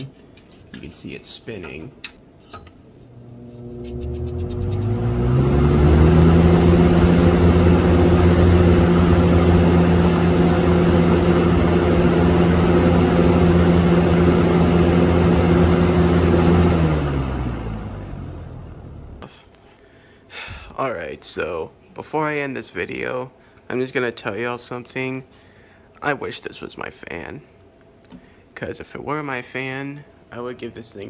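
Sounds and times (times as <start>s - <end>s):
box fan whirring: 3.0s - 19.3s.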